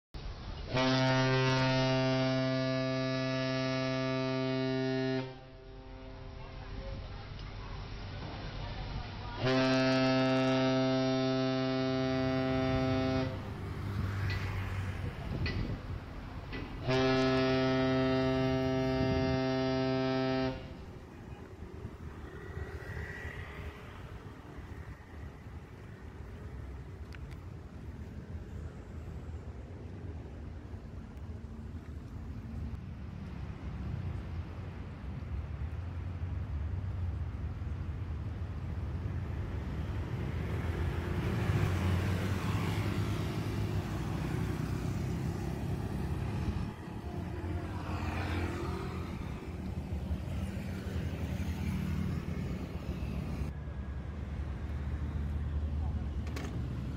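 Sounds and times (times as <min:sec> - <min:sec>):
faint street noise: 0:00.2 - 0:56.9
traffic engine rumble: 0:00.2 - 0:56.9
loud low horn-like drone: 0:00.7 - 0:06.6, 0:09.4 - 0:14.0, 0:16.8 - 0:23.8, 0:41.3 - 0:53.5
vehicle passing: 0:09.6 - 0:35.1, 0:35.7 - 0:56.9.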